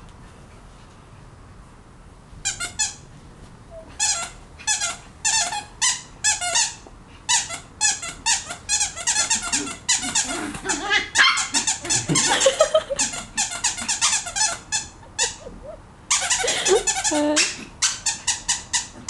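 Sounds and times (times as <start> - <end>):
squeaky toy squeaks: 2.4 - 3.0, 4.0 - 12.4, 13.0 - 15.4, 16.1 - 19.0.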